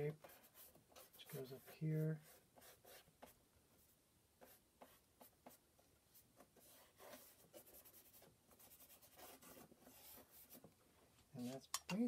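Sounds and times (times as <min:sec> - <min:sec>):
paintbrush scratching on canvas: 0:00.0 - 0:03.4, 0:04.4 - 0:10.7.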